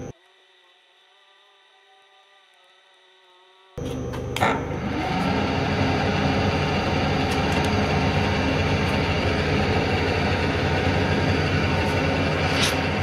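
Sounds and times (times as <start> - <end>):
milling machine running: 3.8 - 13.0.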